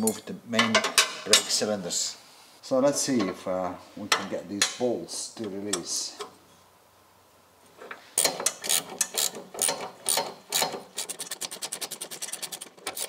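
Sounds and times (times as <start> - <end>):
ratchet wrench clicking: 8.2 - 13.0.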